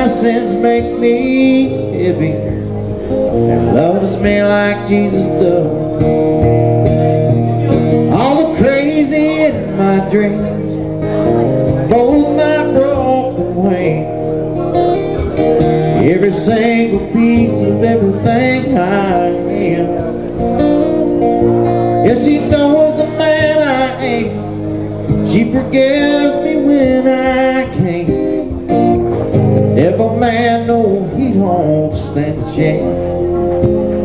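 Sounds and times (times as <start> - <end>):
man singing: 0.0 - 6.2, 7.6 - 14.9, 15.6 - 20.3, 21.4 - 34.0
acoustic guitar strumming: 0.0 - 34.0.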